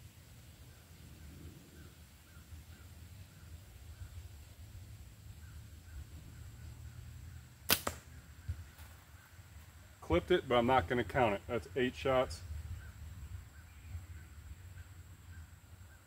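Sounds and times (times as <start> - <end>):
slingshot bands snapping: 7.7 - 8.1.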